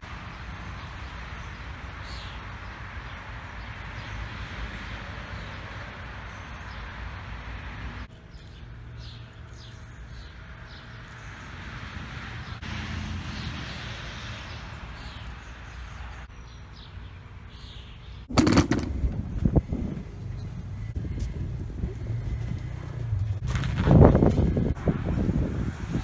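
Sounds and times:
wind rumbling on microphone: 0:18.3 - 0:26.0.

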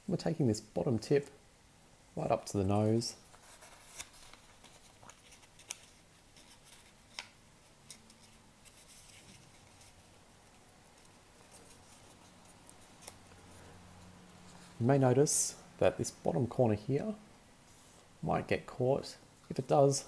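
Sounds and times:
paper rustling and crinkling: 0:03.2 - 0:13.7.

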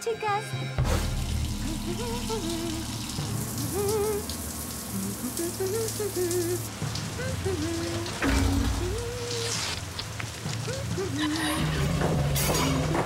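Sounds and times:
slow wavering melody: 0:00.1 - 0:09.7
shower water spraying: 0:00.8 - 0:13.0.

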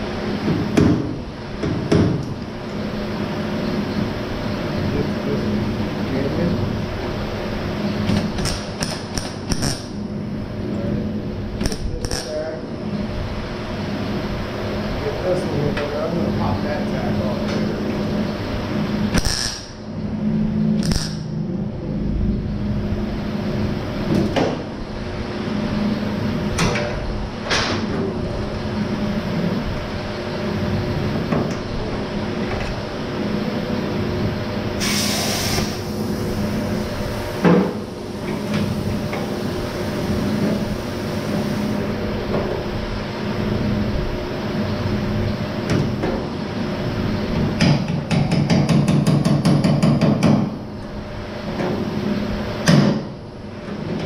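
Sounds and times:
steady hum: 0:00.0 - 0:54.0
short hiss: 0:34.8 - 0:35.9.

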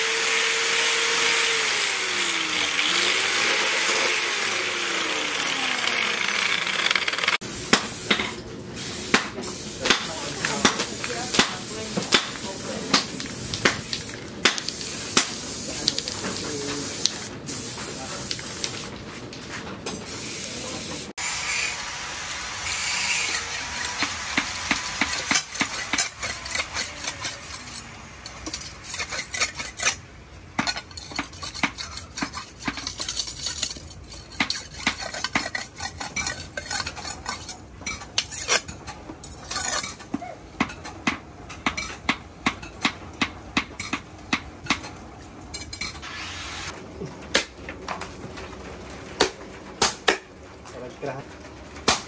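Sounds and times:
blade scraping on whetstone: 0:22.7 - 0:30.0, 0:30.6 - 0:37.6.

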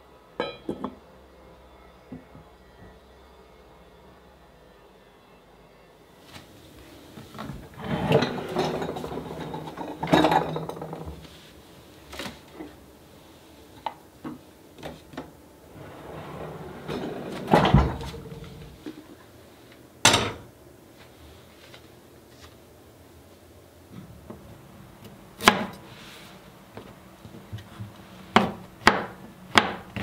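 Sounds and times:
earthenware pots knocking and clinking: 0:00.4 - 0:01.0
kitchen drawer sliding: 0:07.4 - 0:11.4, 0:15.7 - 0:19.0.

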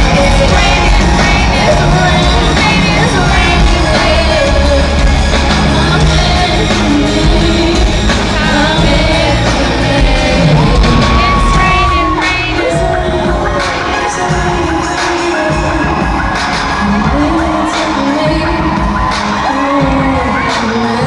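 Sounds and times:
crowd yelling and whooping: 0:00.0 - 0:21.0
loud band with heavy bass: 0:00.0 - 0:21.0
woman singing: 0:00.0 - 0:21.0.

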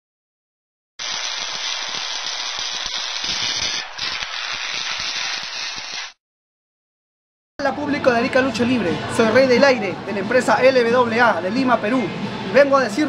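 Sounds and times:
hissing crackling fire: 0:01.0 - 0:06.2.

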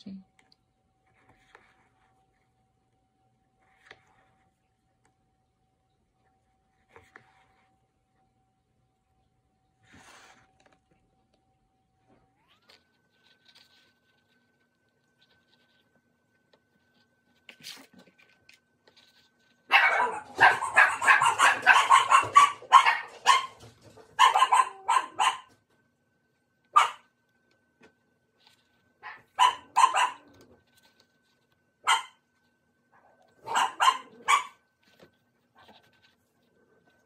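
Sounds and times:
dog barking: 0:19.7 - 0:23.6, 0:24.2 - 0:25.5, 0:26.7 - 0:27.1, 0:29.0 - 0:30.4, 0:31.8 - 0:32.2, 0:33.4 - 0:34.6.

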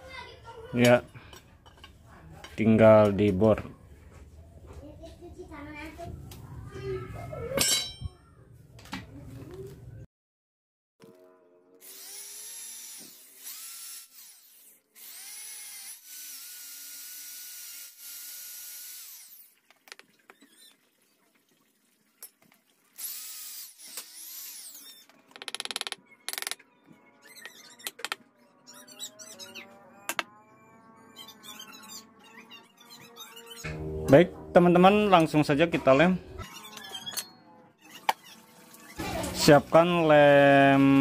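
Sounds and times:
power drill boring into wood: 0:11.8 - 0:19.5, 0:23.0 - 0:25.0.

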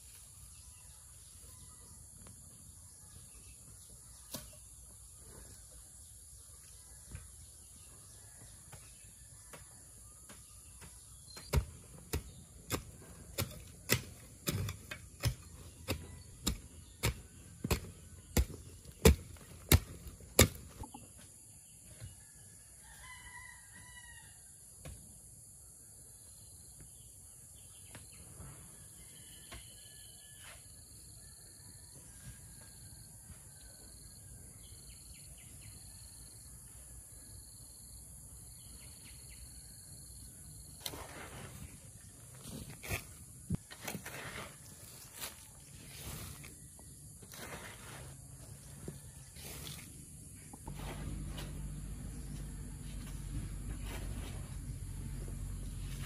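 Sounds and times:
rooster crowing: 0:22.4 - 0:24.5.

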